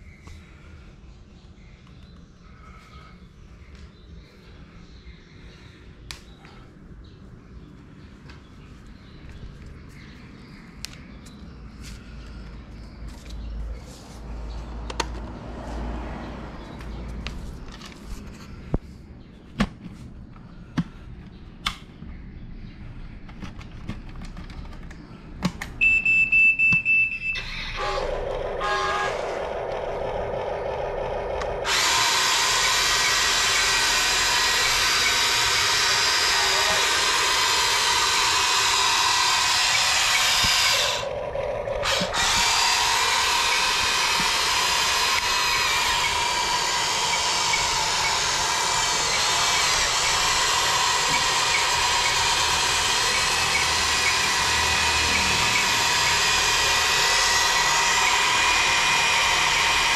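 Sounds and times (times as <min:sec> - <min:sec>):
toy electric motors whirring: 0:27.4 - 0:59.9.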